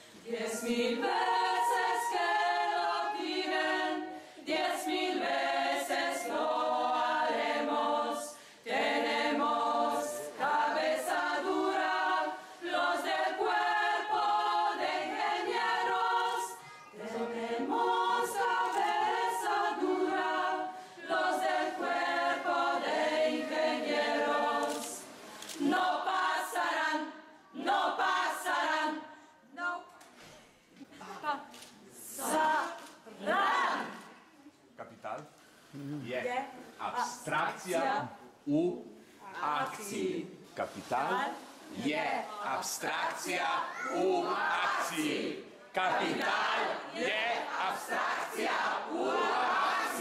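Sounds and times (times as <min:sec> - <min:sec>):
choir singing: 0:00.0 - 0:29.2, 0:32.1 - 0:34.1, 0:41.7 - 0:50.0.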